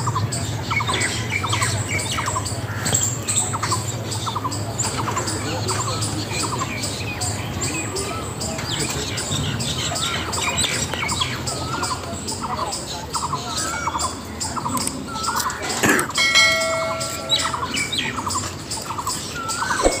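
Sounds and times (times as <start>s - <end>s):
birds chirping: 0.0s - 20.0s
ringing chime: 16.2s - 18.5s.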